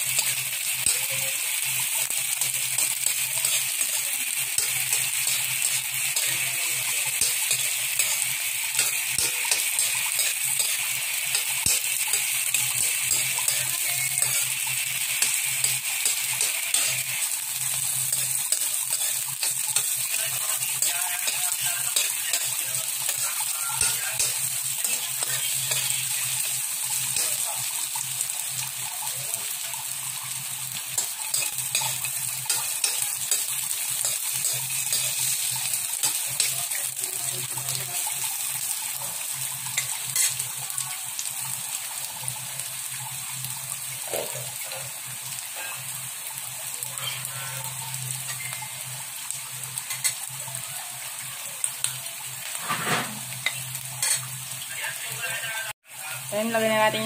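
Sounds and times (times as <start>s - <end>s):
onion sizzling in hot oil: 0.0s - 57.0s
metal spoon scraping a pan: 2.1s - 27.7s, 30.9s - 37.0s, 39.1s - 40.5s, 49.8s - 50.3s, 52.5s - 54.3s.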